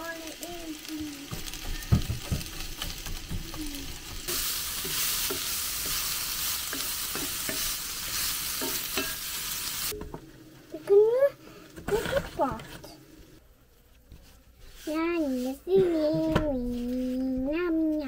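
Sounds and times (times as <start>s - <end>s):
vegetables sizzling in skillet: 0.0s - 13.4s
spatula scraping and knocking pan: 1.2s - 10.2s, 11.8s - 12.9s.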